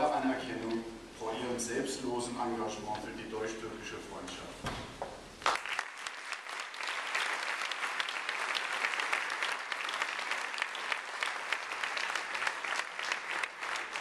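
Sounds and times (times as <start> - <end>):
audience applauding: 5.4 - 14.0.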